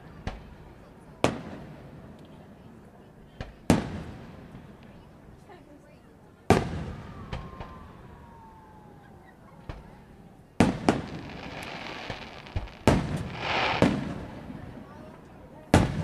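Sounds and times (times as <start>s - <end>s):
small firework pops: 0.2s - 0.6s, 3.4s - 5.0s, 6.5s - 7.8s, 9.6s - 9.9s, 10.6s - 14.6s, 15.7s - 16.0s
firework shells bursting: 10.9s - 14.3s
firework crackling hiss: 10.9s - 14.4s.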